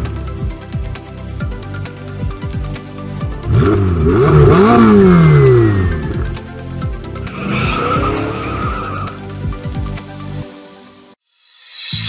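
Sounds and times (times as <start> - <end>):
electronic music with steady beat: 0.0 - 10.3
falling pitched sound effect: 7.3 - 9.2.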